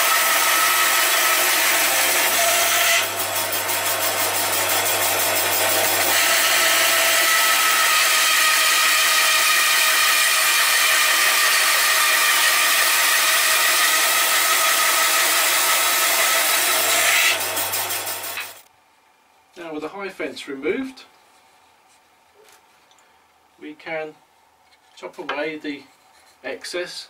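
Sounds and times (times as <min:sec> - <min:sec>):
band saw running: 0:00.0 - 0:18.6
saw blade cutting wood: 0:00.0 - 0:18.6.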